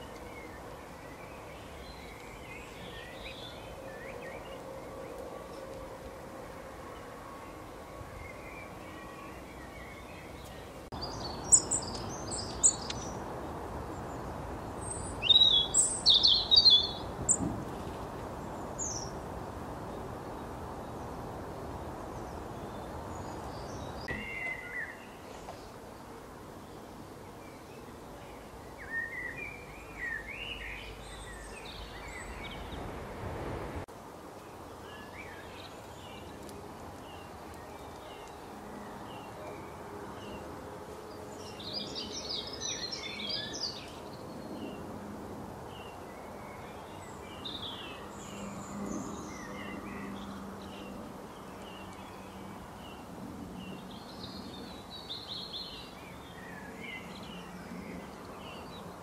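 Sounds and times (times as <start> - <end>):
steady outdoor hum: 0.0 - 59.0
small birds chirping: 7.0 - 33.0.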